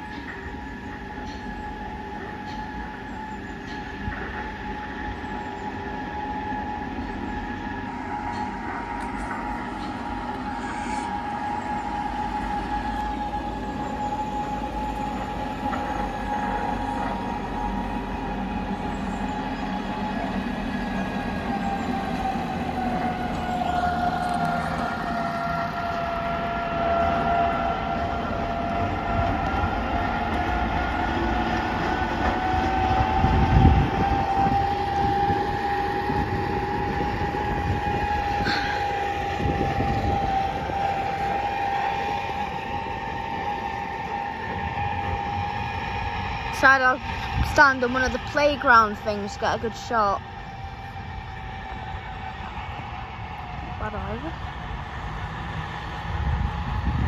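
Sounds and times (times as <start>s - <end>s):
diesel locomotive whine: 0.0s - 57.0s.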